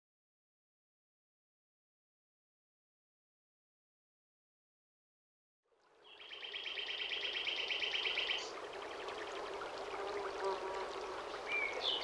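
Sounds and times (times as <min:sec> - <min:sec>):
faint bird chirps: 0:06.0 - 0:09.2, 0:11.5 - 0:12.0.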